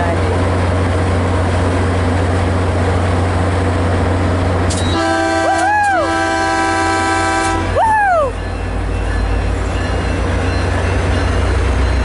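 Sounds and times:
diesel locomotive rumbling: 0.0 - 12.0
train horn chord: 4.9 - 7.8
person shouting woo: 5.5 - 6.1, 7.7 - 8.4.

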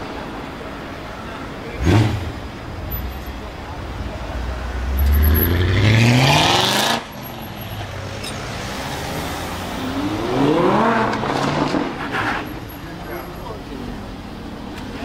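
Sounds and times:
car engine accelerating hard: 1.7 - 7.2, 8.4 - 12.0.

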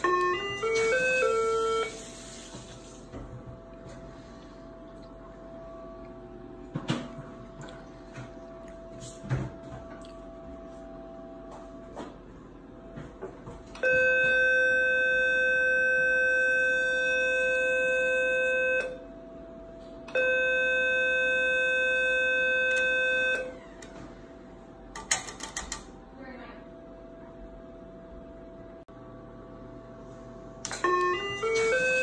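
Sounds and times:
electronic activation tone: 20.1 - 23.9, 30.7 - 32.0.

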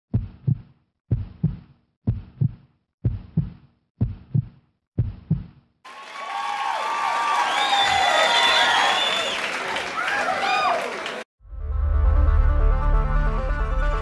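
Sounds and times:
heartbeat thumps: 0.1 - 5.6.

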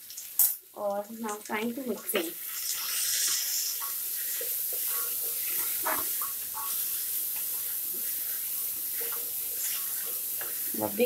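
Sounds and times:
vegetables sizzling in hot oil: 0.0 - 11.0
spoon scraping metal pot: 3.2 - 6.9.

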